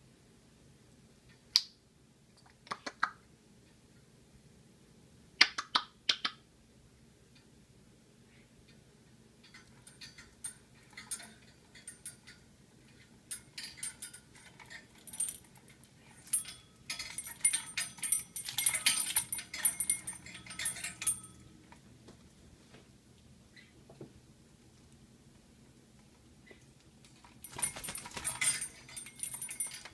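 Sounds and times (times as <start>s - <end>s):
parrot rattling metal toy: 9.4s - 21.6s, 27.0s - 29.9s.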